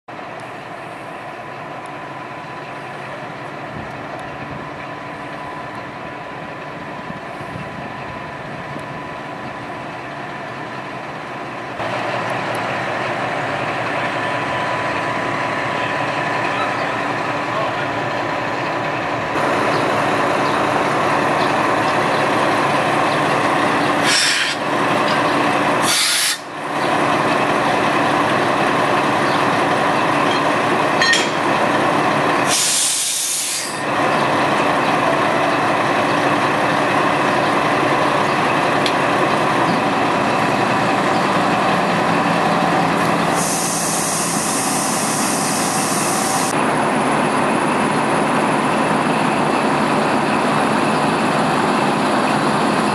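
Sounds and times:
diesel locomotive running: 0.1 - 52.9
air brake hisses: 24.0 - 24.6, 25.8 - 26.5, 32.4 - 33.8, 43.3 - 46.5.

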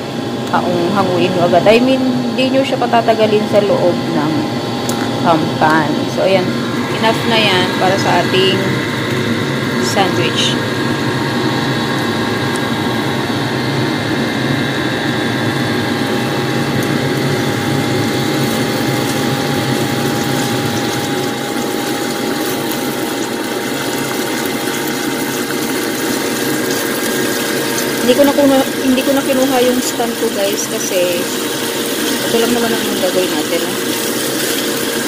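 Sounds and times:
steady motor hum: 0.0 - 35.0
meat sizzling in a frying pan: 15.7 - 35.0.

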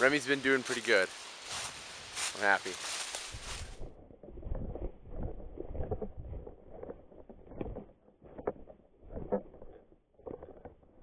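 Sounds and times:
footsteps crunching dry leaves: 0.0 - 4.0.

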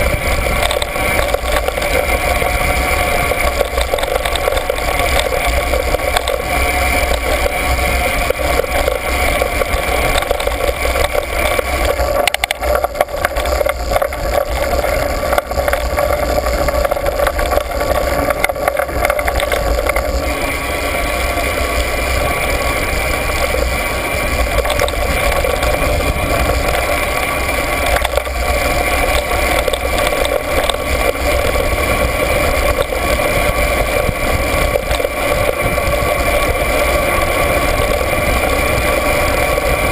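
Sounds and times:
low rumble: 0.0 - 39.9
steady mechanical drone: 0.0 - 39.9.

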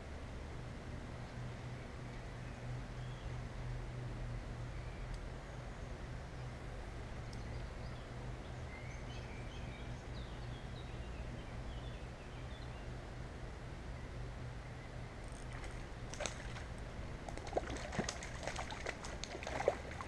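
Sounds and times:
river rumble and hiss: 0.0 - 20.0.

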